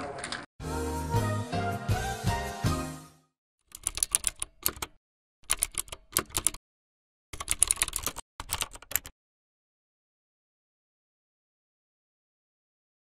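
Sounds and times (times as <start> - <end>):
rapid typing key clicks: 3.7 - 6.6, 7.4 - 9.1.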